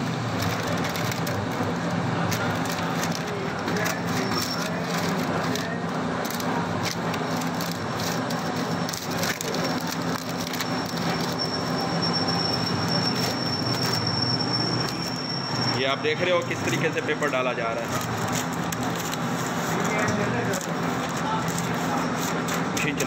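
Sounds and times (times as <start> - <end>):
plastic film crinkling: 0.0 - 15.1, 16.0 - 23.0
thin high whine: 10.2 - 16.8.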